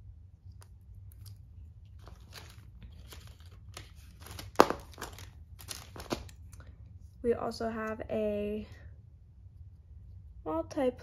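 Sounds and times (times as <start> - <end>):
plastic bag crinkling: 1.9 - 6.5.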